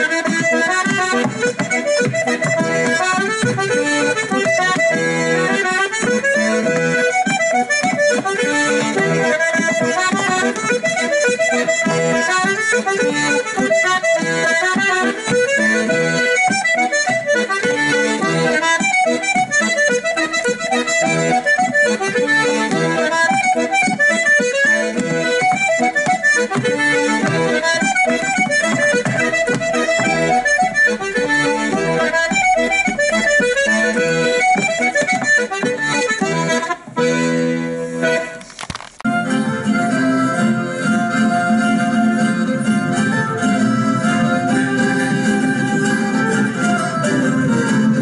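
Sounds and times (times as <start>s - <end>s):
accordion dance tune: 0.0s - 48.0s.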